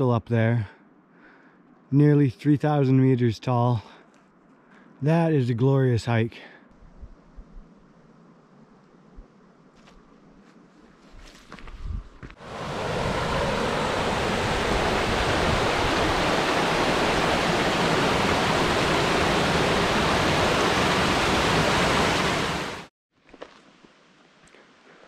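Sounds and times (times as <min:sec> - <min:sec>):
creek water rushing over boulders: 0:12.4 - 0:22.9.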